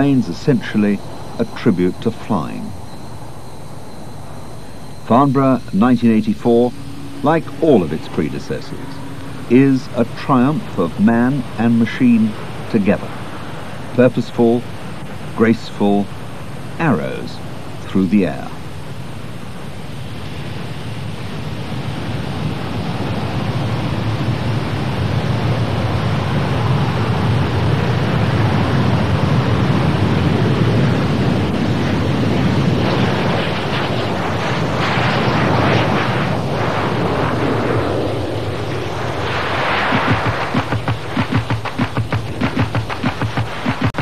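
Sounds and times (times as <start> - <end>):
jet engines roaring: 0.0 - 44.0
music: 40.1 - 44.0.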